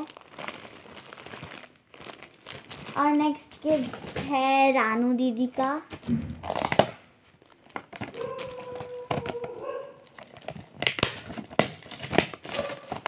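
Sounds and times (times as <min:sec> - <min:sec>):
wrapping paper crinkling: 0:00.0 - 0:04.4, 0:05.9 - 0:13.0.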